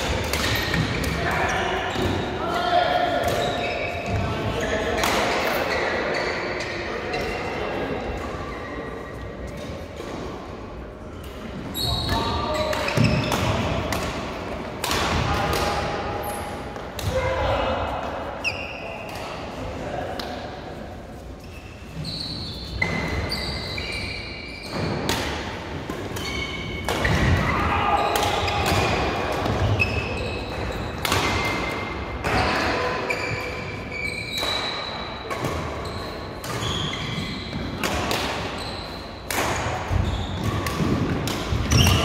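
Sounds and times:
racket hitting shuttlecock: 0:00.0 - 0:01.2, 0:12.7 - 0:15.9, 0:28.1 - 0:32.7, 0:36.4 - 0:38.5, 0:39.2 - 0:42.0
shoes squeaking on court: 0:03.3 - 0:05.1, 0:18.4 - 0:19.3, 0:21.2 - 0:25.0, 0:32.3 - 0:40.8.

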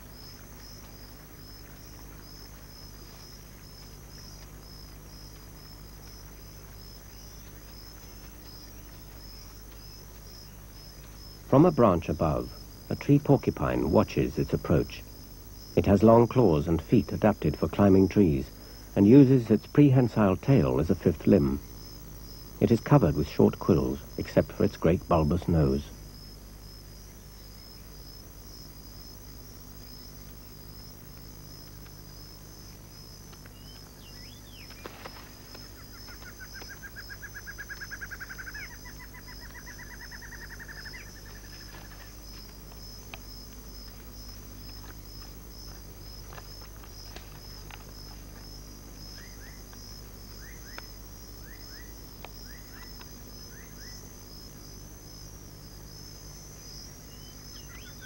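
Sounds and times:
crickets trilling: 0:00.0 - 0:58.0
animal's rapid trilled call: 0:35.6 - 0:42.1.

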